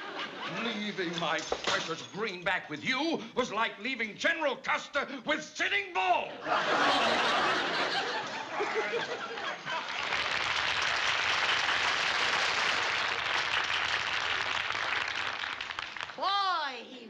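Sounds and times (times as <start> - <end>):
audience laughing: 0.0 - 1.2, 6.2 - 10.3
audience applause: 7.8 - 16.2.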